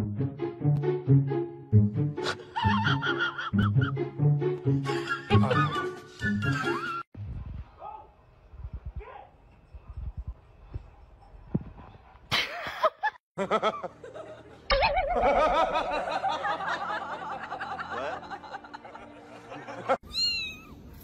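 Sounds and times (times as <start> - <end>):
people laughing: 2.2 - 4.0, 4.8 - 7.0, 12.3 - 20.0.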